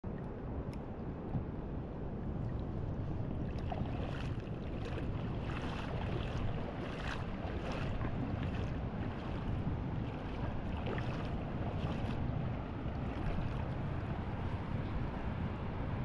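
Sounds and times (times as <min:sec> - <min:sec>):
wind buffeting microphone: 0:00.1 - 0:16.0
shallow water splashing: 0:02.4 - 0:13.8.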